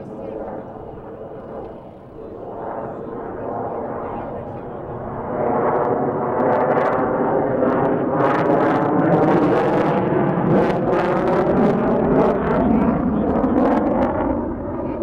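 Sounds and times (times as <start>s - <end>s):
jet engines roaring with crackles: 0.0s - 15.0s.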